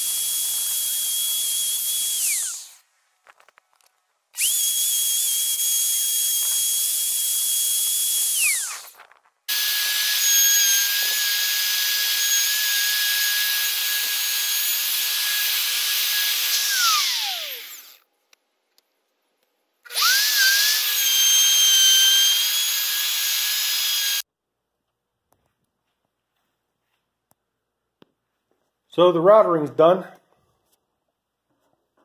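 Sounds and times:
electric router whining: 0.0 - 2.8, 4.4 - 18.0, 19.9 - 24.2.

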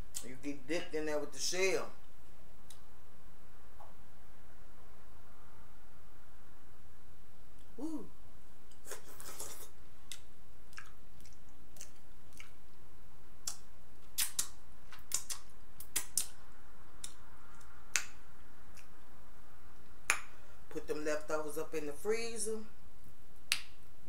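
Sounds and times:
chewing with lip smacks: 8.8 - 12.8, 13.4 - 16.4.

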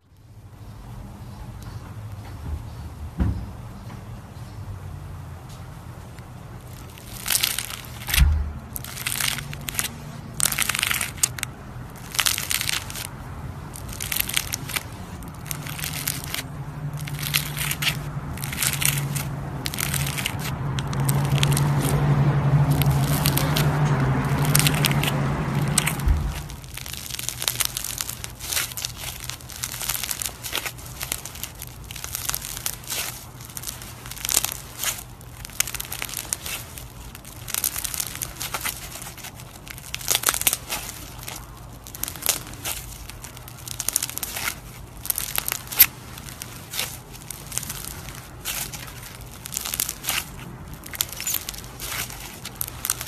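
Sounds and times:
slime crackling and crunching: 6.0 - 53.0.

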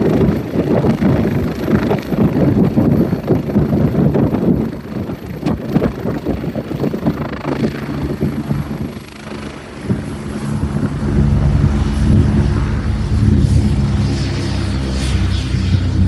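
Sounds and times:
helicopter engine and rotor hum: 0.0 - 16.0
wind buffeting microphone: 0.0 - 16.0.

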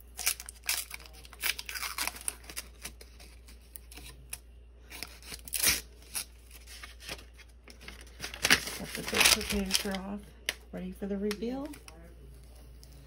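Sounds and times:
paper wrap crinkling: 0.0 - 10.6
tape peeling: 0.2 - 10.0.

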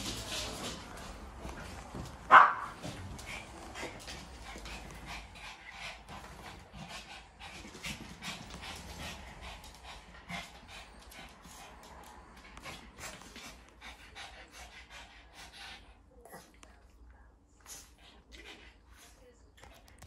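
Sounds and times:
dogs panting: 0.0 - 17.0, 17.6 - 20.0.

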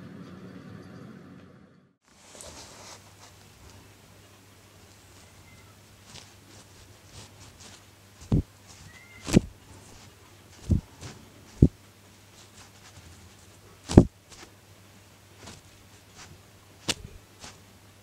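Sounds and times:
dull thumps: 6.1 - 11.8, 13.8 - 14.5, 15.4 - 17.6.

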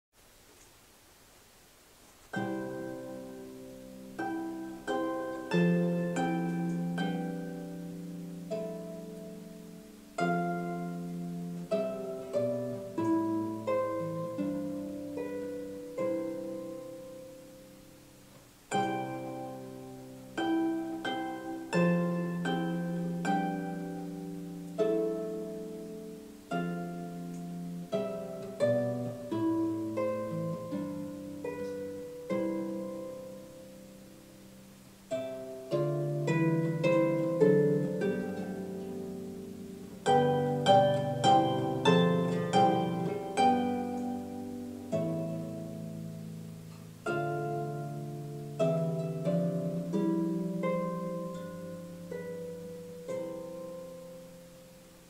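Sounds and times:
harp music: 2.3 - 55.0.

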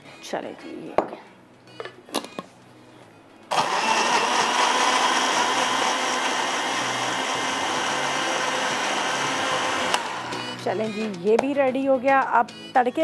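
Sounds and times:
blender running: 3.5 - 10.6.

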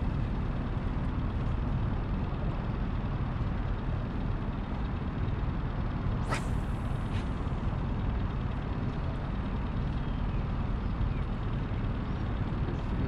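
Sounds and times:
rising swish: 6.3 - 7.3.

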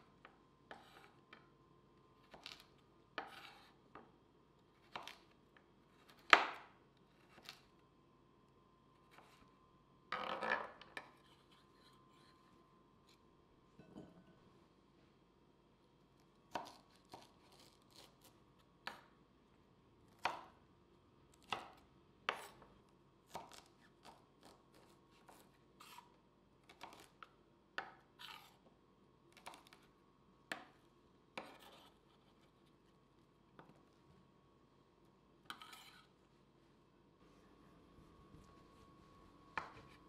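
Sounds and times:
knife scraping slices: 3.2 - 3.8, 16.6 - 18.2, 25.3 - 26.1, 28.2 - 28.6, 31.4 - 32.4, 35.5 - 36.1.

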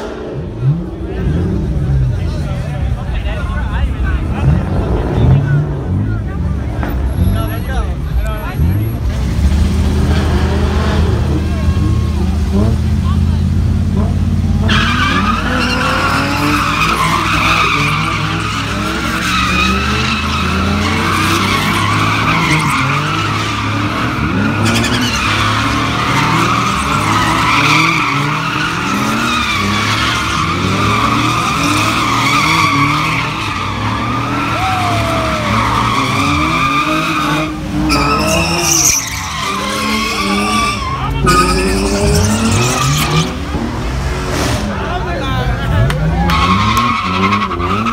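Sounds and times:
car engines revving: 0.0 - 47.9
tyres squealing: 14.6 - 43.4.

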